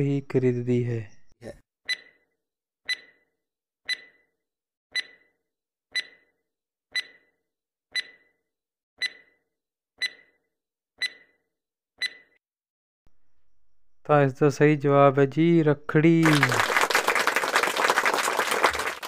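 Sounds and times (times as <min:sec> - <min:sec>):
timer ticking with ringing tone: 0:01.9 - 0:02.3, 0:02.9 - 0:03.3, 0:03.9 - 0:08.4, 0:09.0 - 0:10.4, 0:11.0 - 0:12.4.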